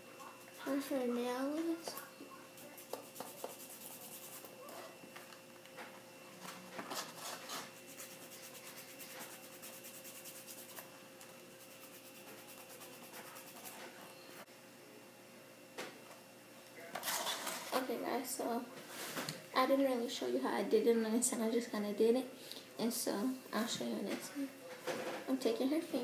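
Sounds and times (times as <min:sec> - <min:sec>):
nail file rubbing fingernail: 0:02.8 - 0:04.5, 0:07.8 - 0:10.8, 0:11.6 - 0:13.8.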